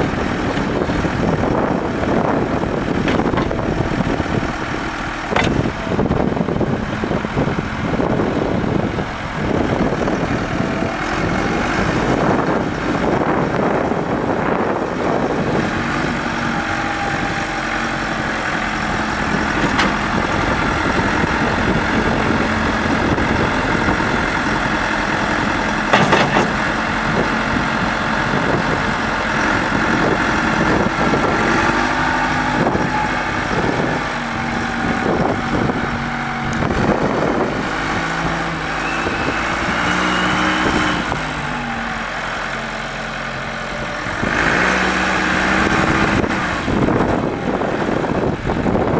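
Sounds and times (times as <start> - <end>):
backhoe diesel engine running: 0.0 - 48.9
sharp clunk: 25.9 - 26.6.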